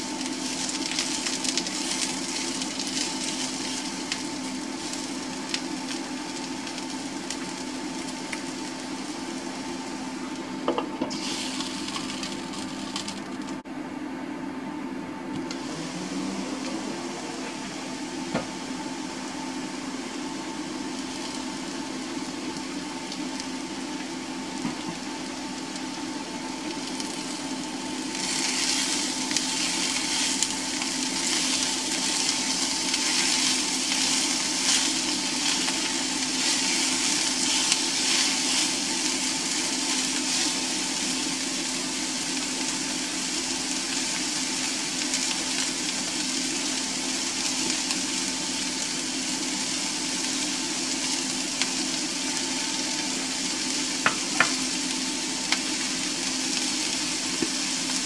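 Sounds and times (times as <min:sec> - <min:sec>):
mushrooms sizzling in a frying pan: 0:00.0 - 0:13.6, 0:15.4 - 0:58.0
steady hum: 0:00.0 - 0:43.6.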